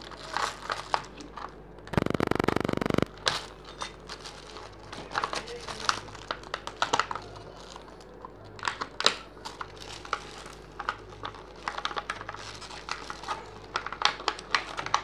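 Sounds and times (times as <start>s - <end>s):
plastic packaging crinkling: 4.0s - 7.8s, 9.4s - 15.0s.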